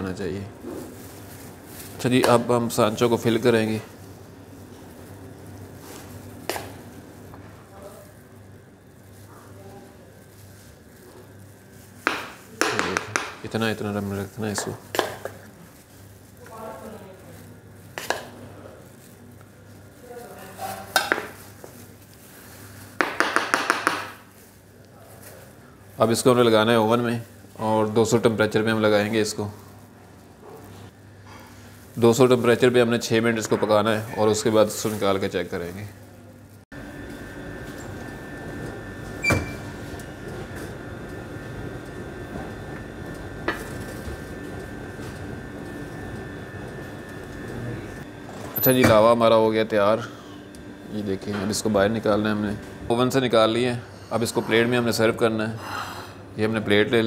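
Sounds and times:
steady hum: 0.0 - 57.0
ramekin knocking on stone: 12.0 - 13.4.

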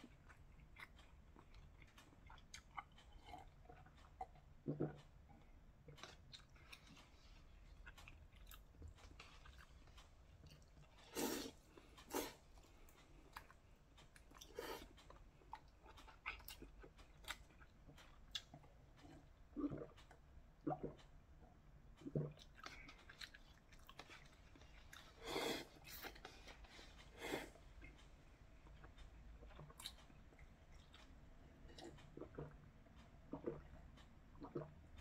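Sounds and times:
faint chewing: 0.0 - 35.0
slurping noodles: 11.0 - 12.4
sipping broth: 11.0 - 12.5.

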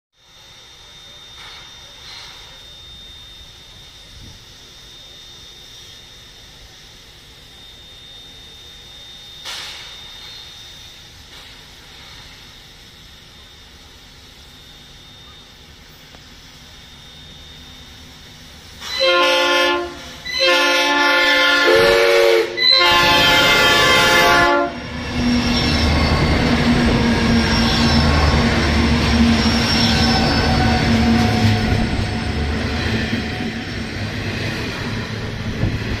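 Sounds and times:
locomotive engine drone: 0.2 - 36.0
train wheels rumbling on rails: 9.4 - 14.6, 17.9 - 36.0
locomotive horn blasts: 18.8 - 25.4.

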